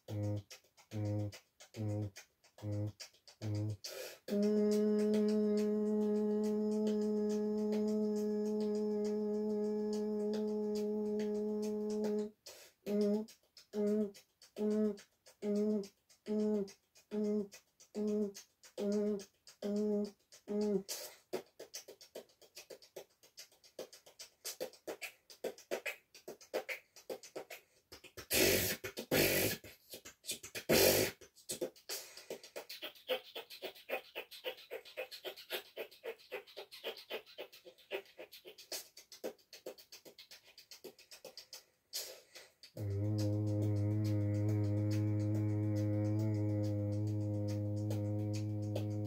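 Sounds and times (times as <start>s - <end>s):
hummed notes: 0.0s - 12.3s, 42.7s - 49.0s
hissing mouth blasts: 0.0s - 49.0s
percussive mouth clicks: 0.0s - 49.0s
person beatboxing: 0.0s - 49.0s.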